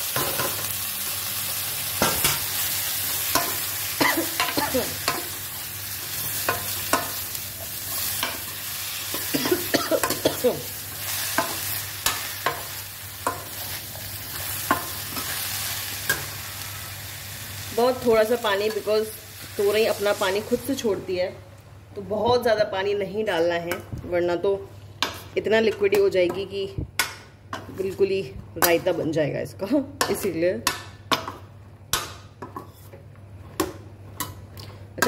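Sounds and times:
food sizzling in a pan: 0.0 - 21.0.

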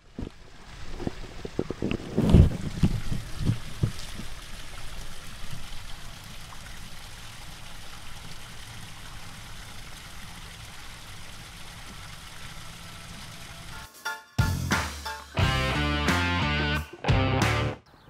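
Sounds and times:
water trickling: 0.0 - 13.8.

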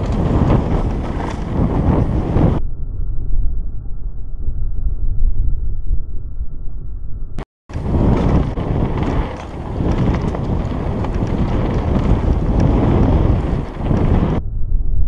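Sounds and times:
wind buffeting microphone: 0.0 - 2.6, 7.7 - 15.0
bike rumble and rattle: 0.0 - 15.0.

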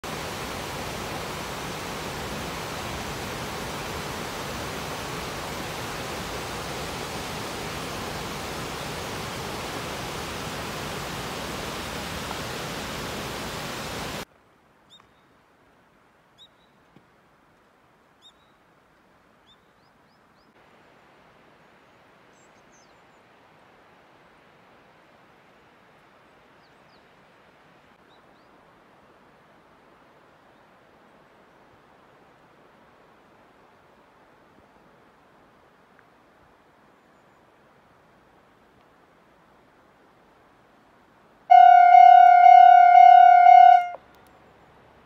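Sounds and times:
river water rushing over weir: 0.0 - 14.3, 41.4 - 44.2.

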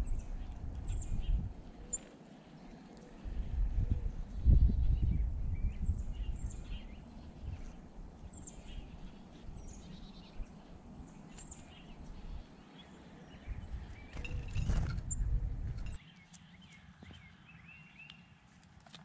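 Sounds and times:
small songbirds chirping: 0.0 - 18.6.

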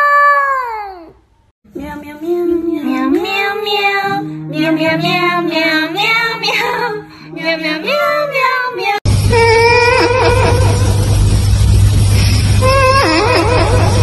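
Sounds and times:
child singing: 1.7 - 9.0
loud low hum with held tone: 9.1 - 14.0.

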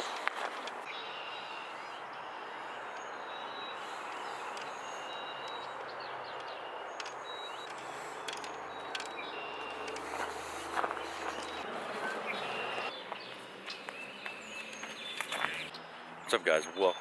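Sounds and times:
footsteps on gravel: 0.0 - 0.9, 7.8 - 15.7
birds chirping: 0.0 - 17.0.

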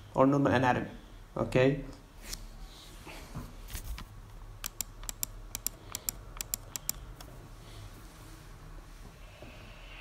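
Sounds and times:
sharp clicks: 4.6 - 7.3.

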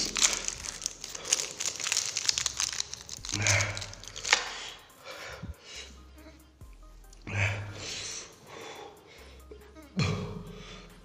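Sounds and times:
foil wrapper crinkling and tearing: 0.0 - 4.8.

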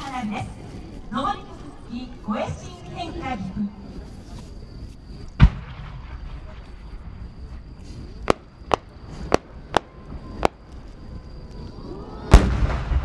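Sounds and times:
loud firework boom rumbling: 5.4 - 7.5, 12.3 - 13.0
firework cracks: 8.2 - 10.9, 12.3 - 13.0.

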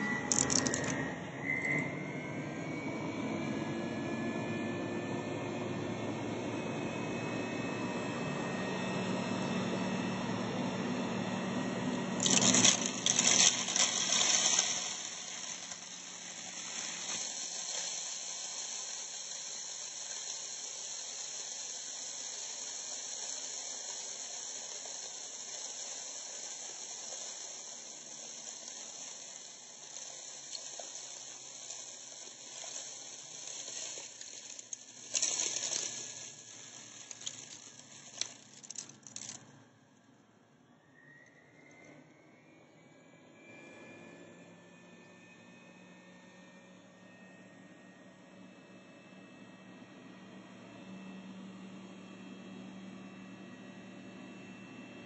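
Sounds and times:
grains rattling and crackling: 0.0 - 1.0, 12.2 - 39.6
upright vacuum cleaner running: 0.0 - 39.8, 41.7 - 55.0.

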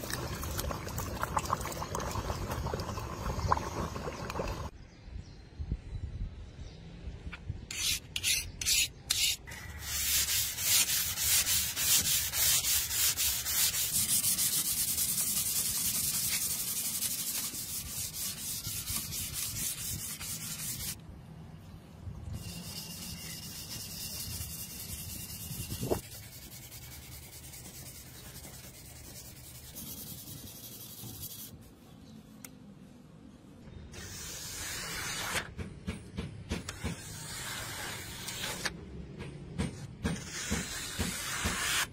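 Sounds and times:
abrasive pad rubbing steel blade: 40.0 - 41.9.

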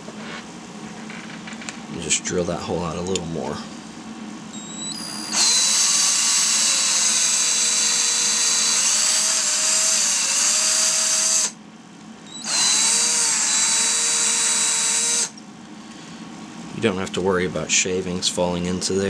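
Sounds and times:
cordless drill drilling plastic: 4.6 - 11.6, 12.3 - 15.3.

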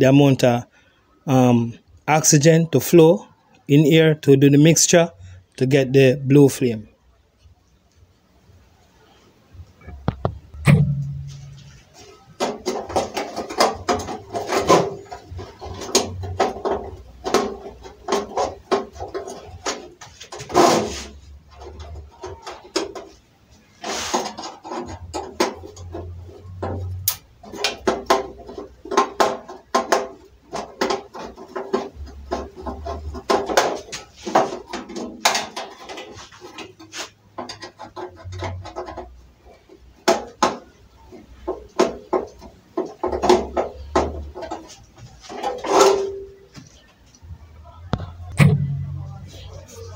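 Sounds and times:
metal stove frame clanking: 10.6 - 23.1, 45.3 - 46.5.

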